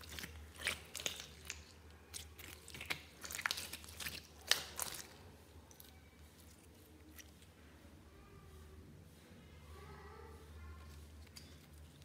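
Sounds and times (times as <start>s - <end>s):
slime clicking and popping: 0.0s - 5.1s.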